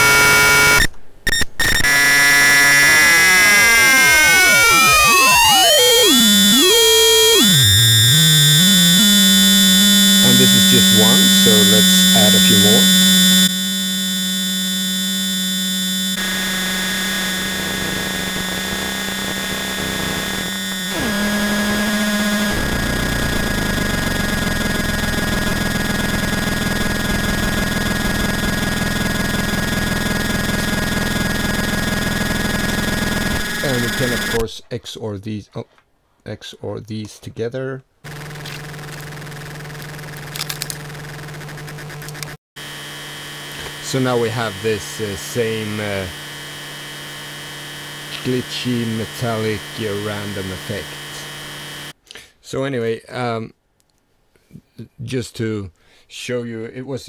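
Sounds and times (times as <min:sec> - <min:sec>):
buzzy synth tone sweeping pitch: 0:00.0 - 0:34.4, 0:42.6 - 0:51.9
high electronic whine: 0:00.0 - 0:34.4, 0:38.1 - 0:52.0.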